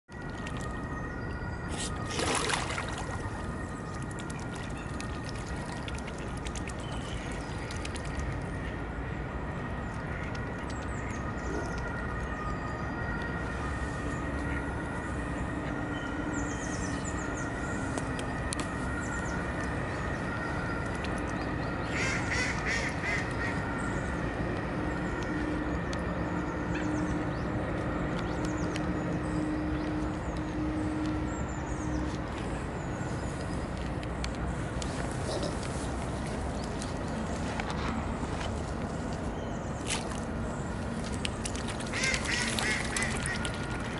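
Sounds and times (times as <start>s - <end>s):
ducks quacking: 41.9s - 43.6s.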